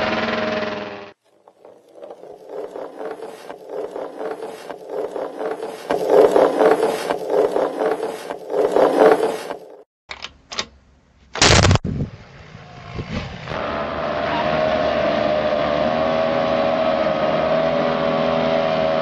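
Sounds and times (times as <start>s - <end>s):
small engine running: 0.0s - 9.8s
wooden wheel rattling on asphalt: 1.3s - 9.8s.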